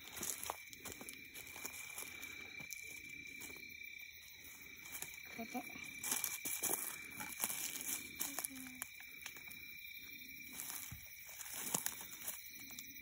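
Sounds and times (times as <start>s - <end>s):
footsteps in dry leaves: 0.0s - 3.6s, 4.6s - 9.0s, 10.5s - 12.8s
high insect drone: 0.0s - 13.0s.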